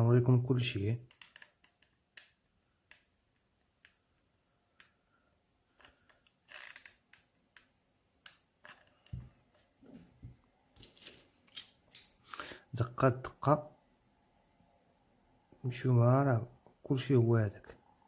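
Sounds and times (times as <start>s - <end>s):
soft handling noise: 8.6s - 12.2s.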